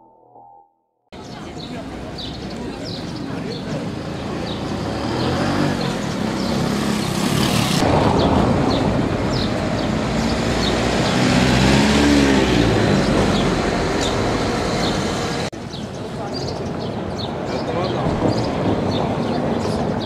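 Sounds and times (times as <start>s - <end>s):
vehicle engine passing by: 1.6s - 15.5s.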